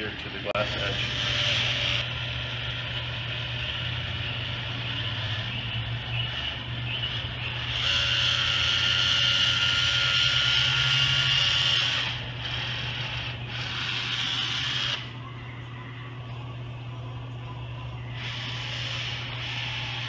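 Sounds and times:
caulking gun motor whining: 0:00.0 - 0:15.2, 0:18.1 - 0:20.0.

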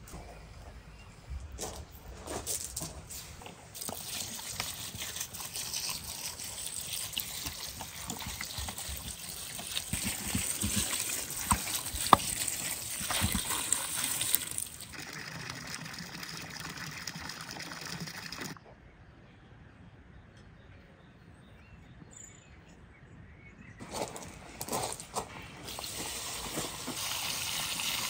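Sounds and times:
water splashing into a pond: 0:03.2 - 0:18.6, 0:25.6 - 0:28.0.

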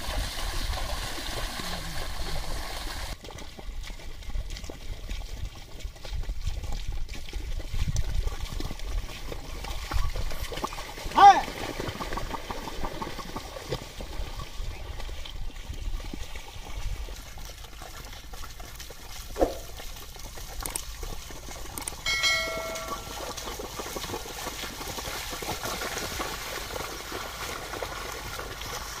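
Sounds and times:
muddy water splashing: 0:00.0 - 0:29.0
short ringing chime: 0:22.0 - 0:23.4.

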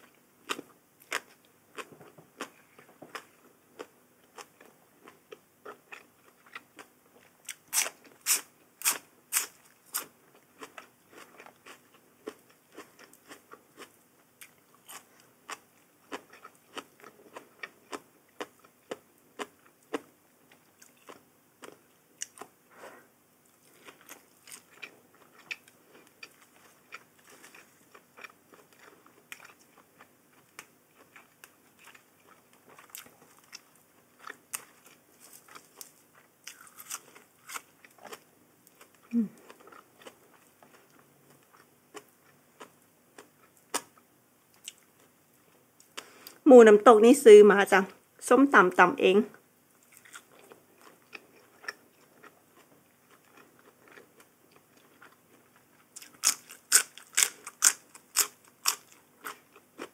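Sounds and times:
crunching crisp food: 0:00.0 - 0:22.6, 0:23.4 - 0:45.2, 0:49.8 - 0:59.9.

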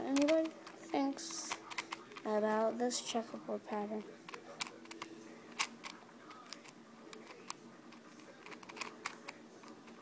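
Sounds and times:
puzzle cube layers clicking: 0:08.4 - 0:10.0.

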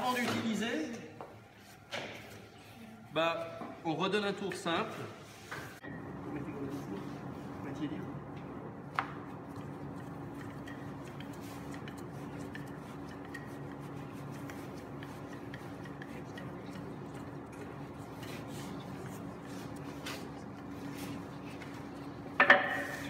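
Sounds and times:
room hum: 0:00.0 - 0:23.0
rolling pin rubbing on pastry: 0:09.3 - 0:23.0.

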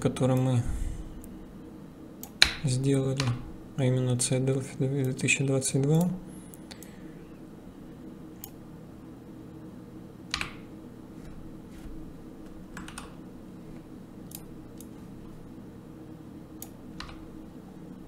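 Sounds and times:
steady low hum: 0:00.0 - 0:18.0
keyboard and mouse clicking: 0:10.3 - 0:10.6, 0:12.8 - 0:13.2, 0:16.6 - 0:17.2.

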